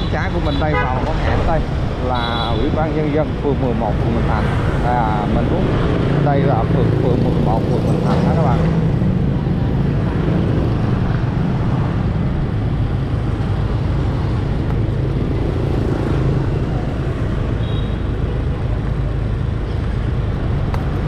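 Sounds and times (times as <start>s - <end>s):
passing traffic: 0.0s - 21.0s
road noise: 0.0s - 21.0s.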